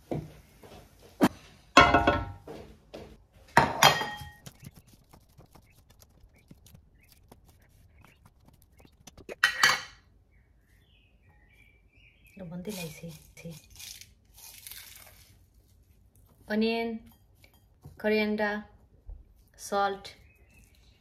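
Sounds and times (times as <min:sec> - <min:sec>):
metal kitchenware clanking: 0:03.6 - 0:04.4, 0:09.3 - 0:10.0
cutlery scraping a ceramic plate: 0:09.4 - 0:10.0.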